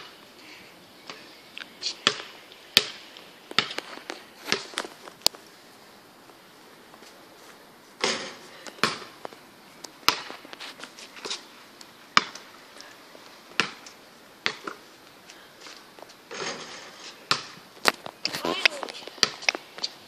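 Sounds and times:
basketball bouncing on asphalt: 0:02.0 - 0:05.4, 0:08.0 - 0:10.6, 0:12.1 - 0:12.6, 0:13.5 - 0:14.9, 0:16.0 - 0:19.9.

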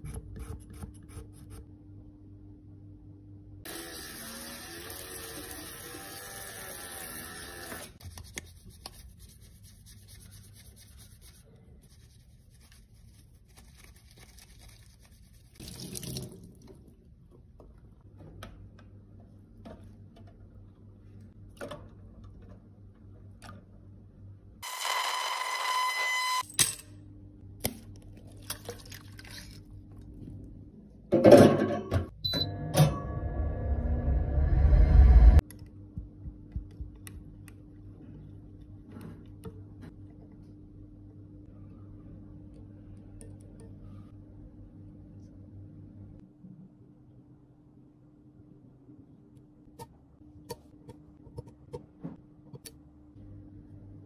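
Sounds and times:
tap water running: 0:03.7 - 0:08.0, 0:15.6 - 0:16.8.

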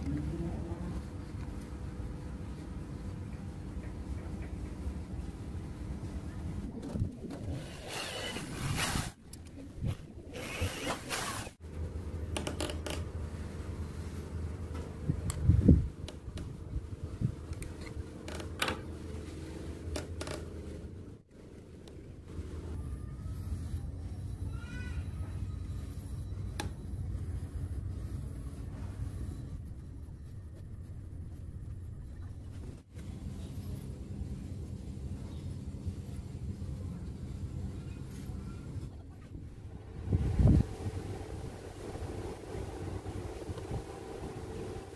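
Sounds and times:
steady low hum: 0:00.0 - 0:44.9
plastic rubbing: 0:06.8 - 0:09.2.

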